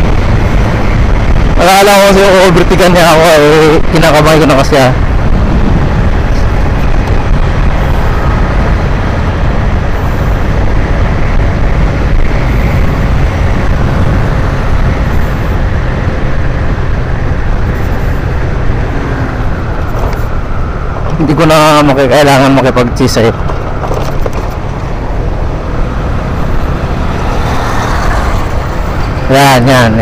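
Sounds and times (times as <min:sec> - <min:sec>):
wind noise on microphone: 0:00.0 - 0:30.0
motorcycle engine running: 0:05.0 - 0:21.3.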